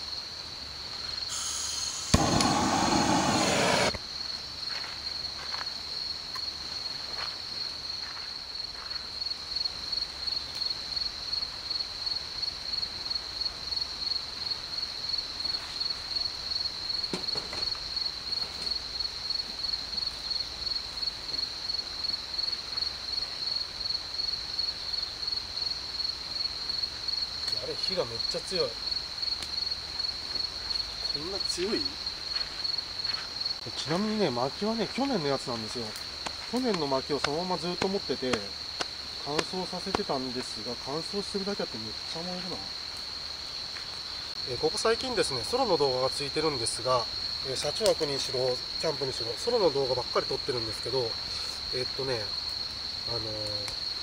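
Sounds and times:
crickets chirping: 0.0s - 54.0s
wood fire crackling: 2.0s - 4.0s, 26.7s - 54.0s
loud rushing noise: 2.1s - 4.0s.

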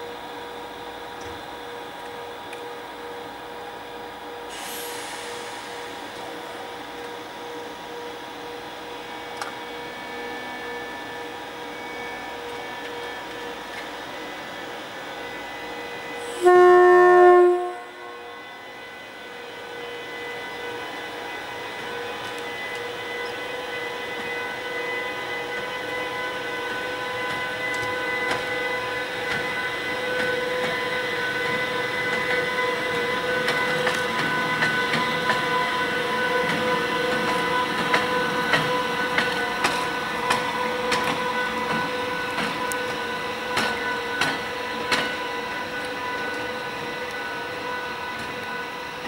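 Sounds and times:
electric locomotive whine and rumble: 0.0s - 49.0s
train wheels clicking over rail joints: 26.7s - 48.6s.

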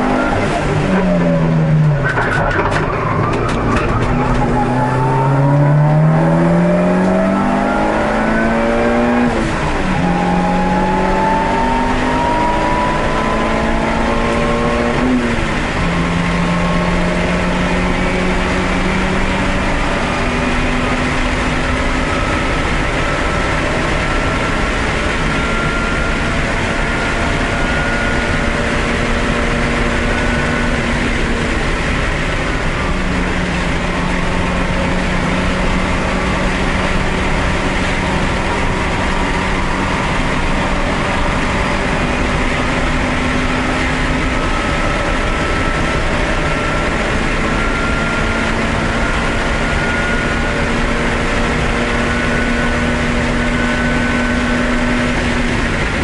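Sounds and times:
race car engine drone: 0.0s - 56.0s
road and wind noise: 0.0s - 56.0s.

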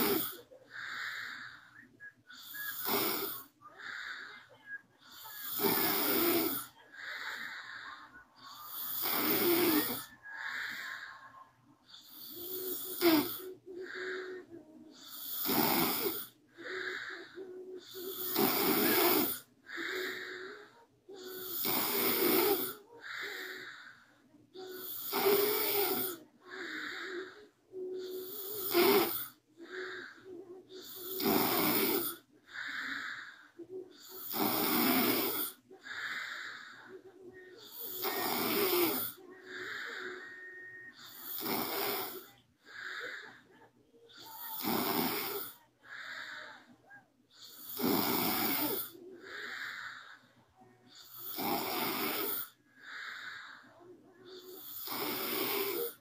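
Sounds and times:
woman snoring: 0.0s - 46.7s, 47.3s - 56.0s.

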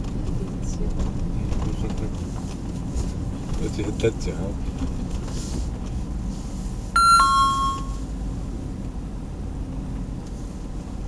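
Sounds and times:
vehicle cabin rumble: 0.0s - 6.9s
two-note electronic chime: 7.0s - 8.0s.

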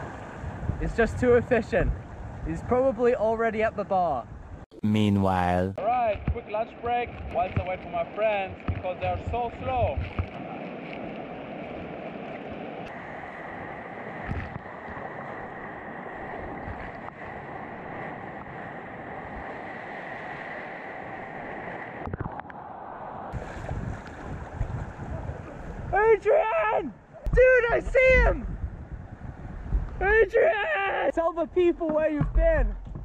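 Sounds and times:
wind noise on microphone: 0.0s - 2.7s, 23.3s - 26.0s, 27.3s - 30.3s.

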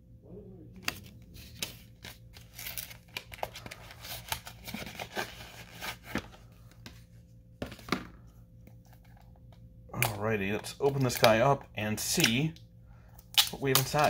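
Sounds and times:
packaging rustling and crinkling: 0.8s - 6.7s.

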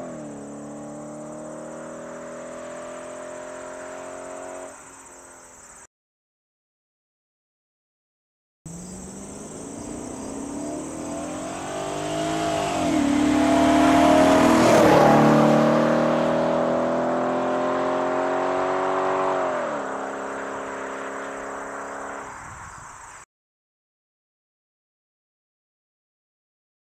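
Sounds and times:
car exhaust accelerating hard: 0.0s - 4.7s, 8.7s - 22.4s.

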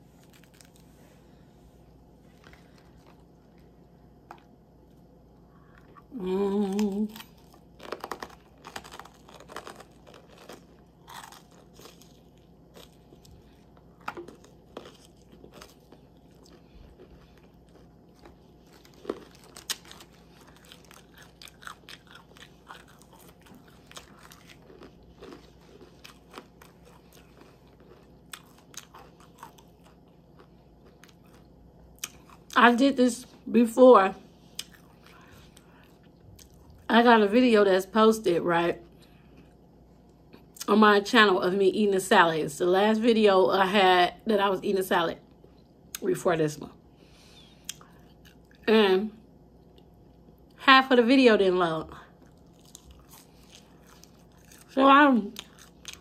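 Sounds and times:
chewing crunchy lettuce: 0.0s - 33.3s, 34.4s - 37.0s, 47.4s - 48.7s, 51.9s - 56.0s
person humming: 6.1s - 7.1s.

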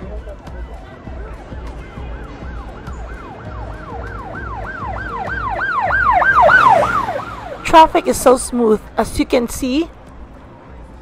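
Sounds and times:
street traffic hum: 0.0s - 11.0s
emergency vehicle siren yelping: 1.4s - 8.3s.

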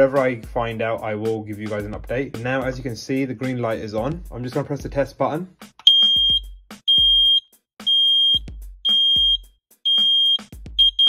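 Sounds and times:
high-pitched alarm beeps: 5.9s - 11.0s.

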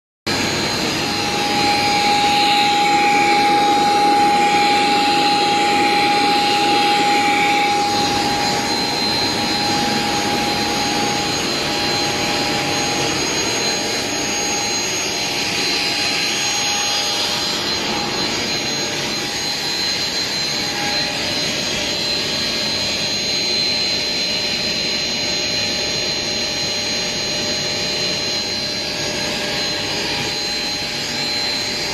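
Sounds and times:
grinding machines running: 0.3s - 24.2s
high whine: 0.3s - 31.9s.

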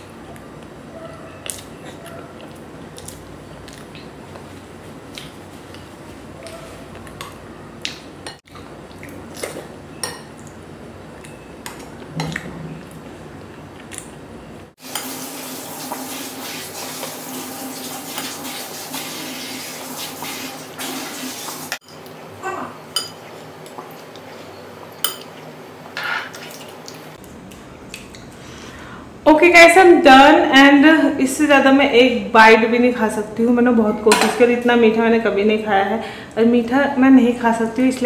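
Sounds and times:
chewing: 1.4s - 9.8s
spoon clinking on dishes: 22.9s - 23.3s, 25.0s - 25.4s.

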